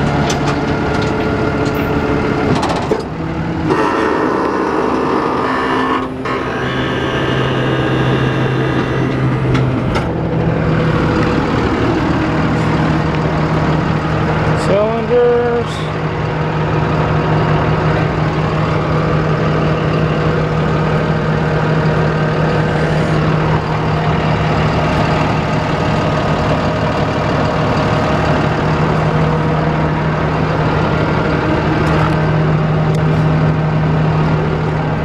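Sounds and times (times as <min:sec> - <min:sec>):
truck engine idling: 0:00.0 - 0:35.0.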